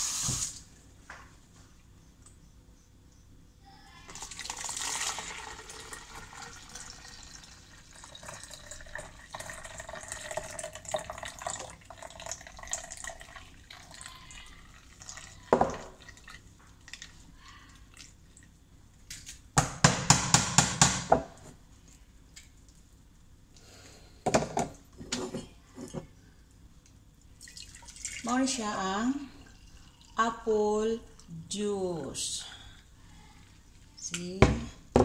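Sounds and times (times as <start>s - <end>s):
juice pouring and splashing: 4.1s - 18.6s, 27.2s - 28.6s.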